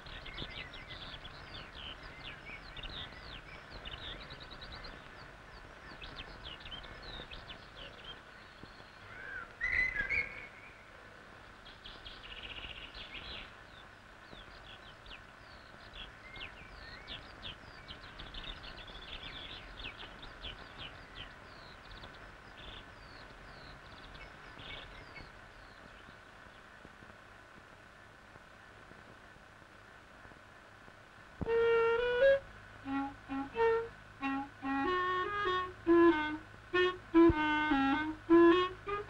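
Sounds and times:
birds chirping and trilling: 0.0 - 26.8.

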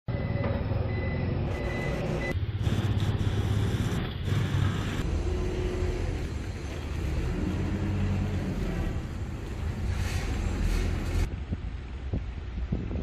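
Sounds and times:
high electronic beep: 0.1 - 2.4
road traffic rumble: 0.1 - 13.0.

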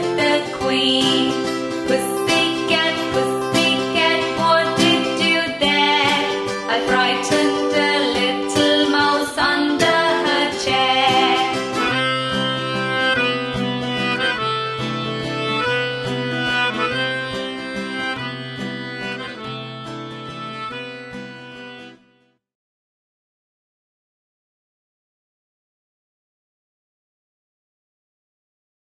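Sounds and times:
nursery rhyme music on strings: 0.0 - 22.0.

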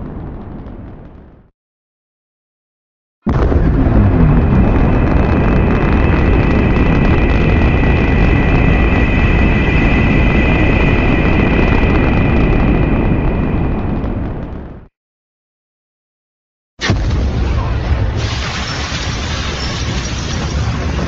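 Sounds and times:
loud dense monster rumble: 3.3 - 14.8
high whine: 3.3 - 14.9.

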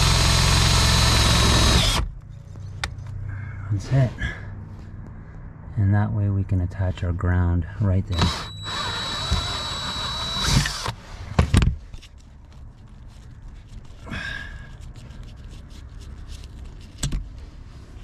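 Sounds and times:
power drill whining: 0.0 - 2.0, 8.1 - 11.0.

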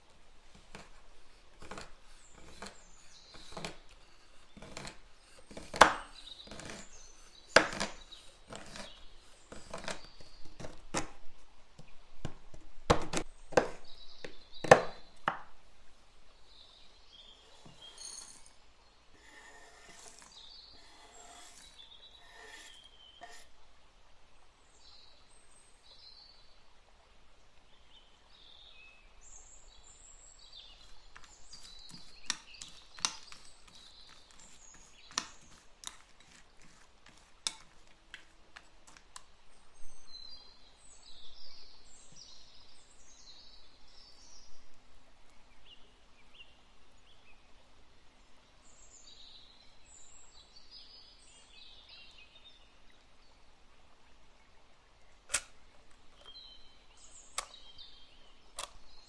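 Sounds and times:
spoon scraping ceramic bowl: 1.6 - 10.1, 17.4 - 18.6, 19.2 - 23.5, 31.5 - 37.9
spoon clinking against bowl: 17.9 - 18.5.

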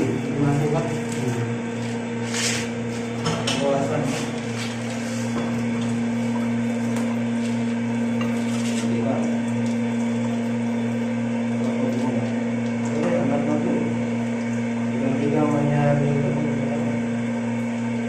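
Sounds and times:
electric hum: 0.0 - 18.0.

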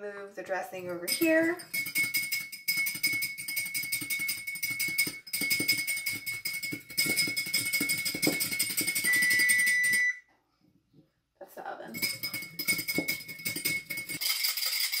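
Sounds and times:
whisk clinking against bowl: 1.1 - 10.1, 12.0 - 15.0
bowl ringing high tone: 8.9 - 10.2.

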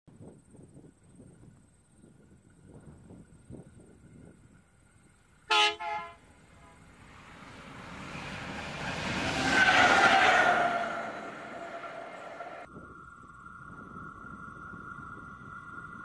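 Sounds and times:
locomotive engine: 4.6 - 12.7
locomotive horn blasts: 5.5 - 6.9
train wheels on rails: 6.5 - 12.7.

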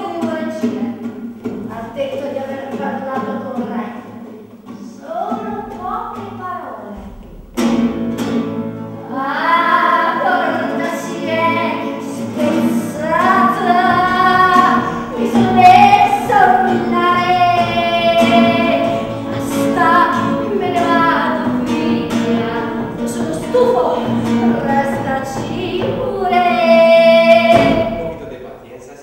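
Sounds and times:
acoustic guitar strumming: 0.0 - 28.8
woman singing: 9.0 - 28.1.

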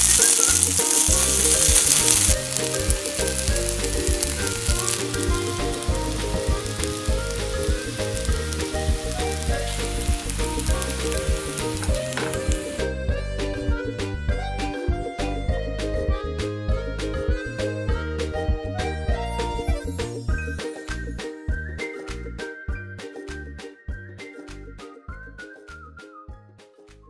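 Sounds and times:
pancakes sizzling in hot oil: 0.0 - 12.9.

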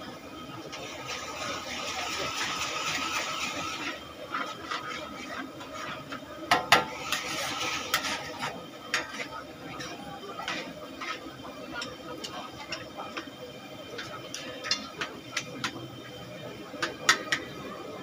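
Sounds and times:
noodles sizzling: 0.5 - 15.9
metal ladle scraping a wok: 0.7 - 13.2, 14.0 - 15.5.

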